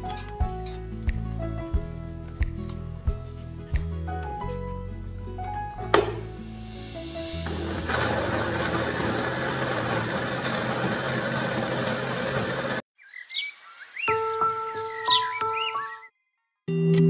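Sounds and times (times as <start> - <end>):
blender motor whirring: 7.4 - 12.8
birds chirping: 13.0 - 16.4.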